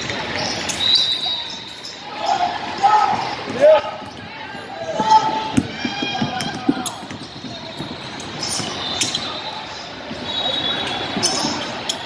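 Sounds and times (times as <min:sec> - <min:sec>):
murmur of voices: 0:00.0 - 0:12.0
sneakers squeaking on court: 0:03.1 - 0:12.0.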